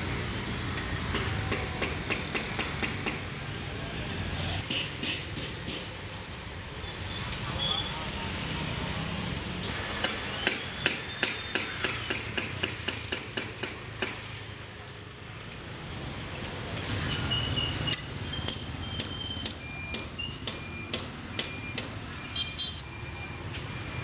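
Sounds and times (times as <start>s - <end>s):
rapid sharp knocks: 10.0s - 14.2s.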